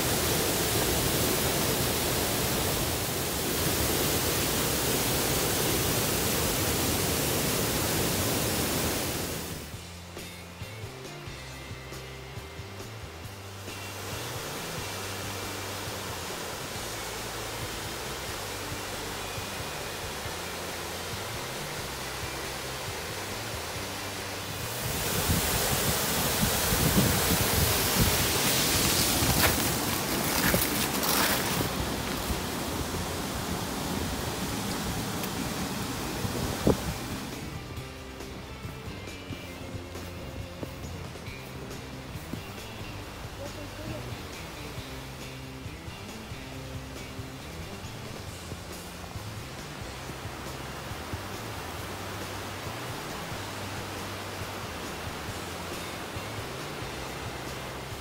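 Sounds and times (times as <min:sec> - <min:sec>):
waterfall rushing: 0:00.0 - 0:10.2, 0:12.2 - 0:58.0
quiet music: 0:00.0 - 0:58.0
wind on microphone: 0:24.6 - 0:37.6.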